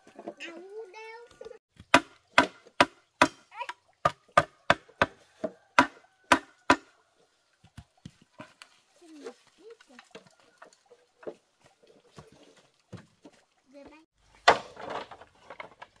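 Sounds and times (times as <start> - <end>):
tool striking wood: 1.8 - 3.4, 4.0 - 6.9.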